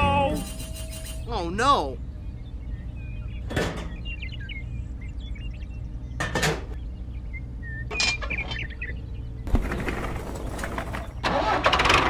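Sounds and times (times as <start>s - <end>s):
low steady hum: 0.0s - 11.3s.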